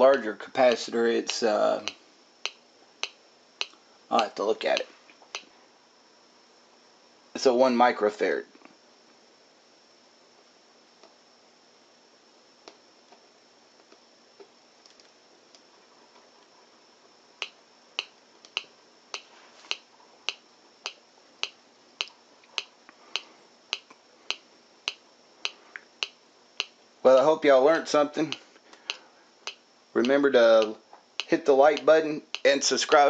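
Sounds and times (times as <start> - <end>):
faint ticks: 17.4 - 26.8.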